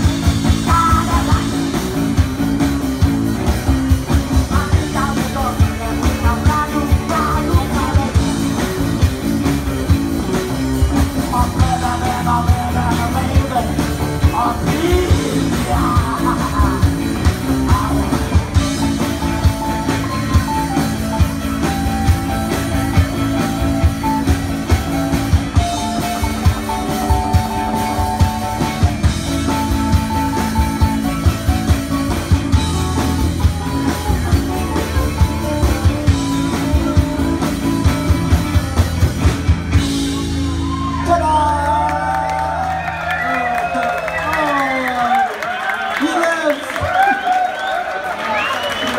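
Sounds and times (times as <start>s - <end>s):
live rock band playing: 0.0s - 48.9s.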